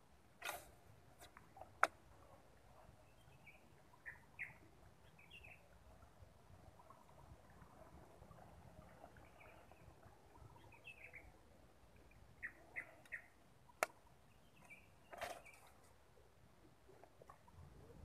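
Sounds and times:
faint bird chirps: 3.0 - 5.7, 12.4 - 13.4.

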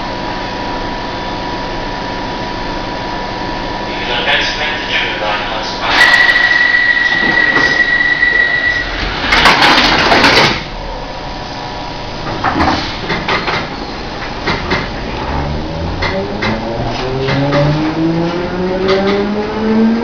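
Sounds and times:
steady high tone: 3.9 - 9.0
traction motors whining: 5.7 - 10.7
train doors sliding closed: 5.9 - 10.7, 12.2 - 15.1.

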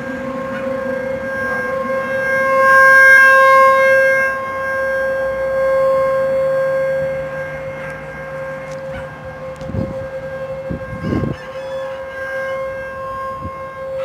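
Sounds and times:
warning siren wailing: 0.0 - 14.0.

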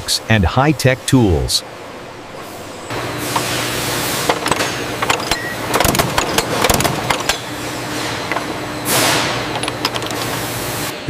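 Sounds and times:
steady machine hum: 0.0 - 11.0
metallic clicks and clanks: 4.3 - 7.5, 9.2 - 10.4.

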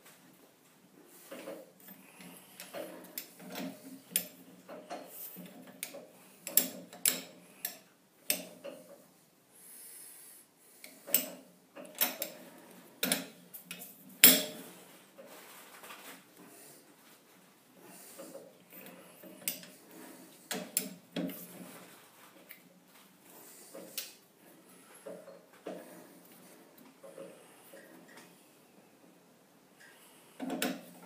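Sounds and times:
metal clicks and knocks: 13.0 - 14.6.

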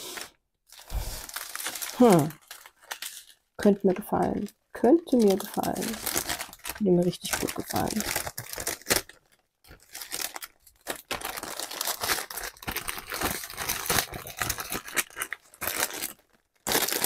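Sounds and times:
plastic packaging crinkling: 0.0 - 17.0.

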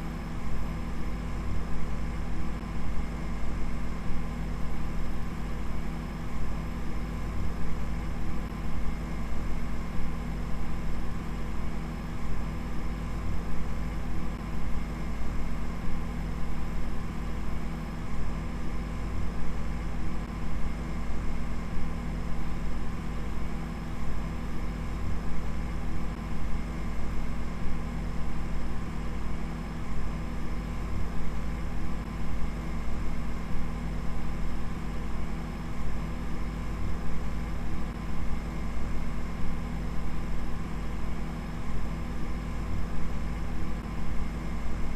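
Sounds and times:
steady low hum: 0.0 - 44.9.

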